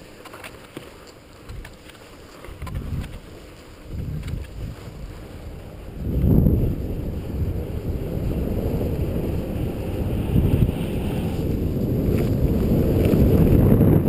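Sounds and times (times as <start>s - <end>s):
wind buffeting microphone: 2.5s - 14.0s.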